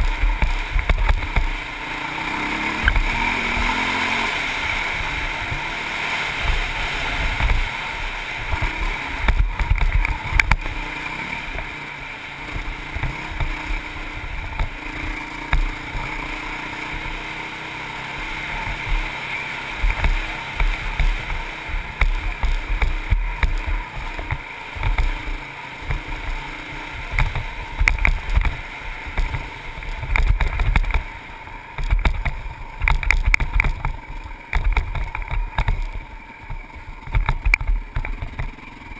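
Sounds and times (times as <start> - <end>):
dirt bike engine running: 0.0 - 38.9.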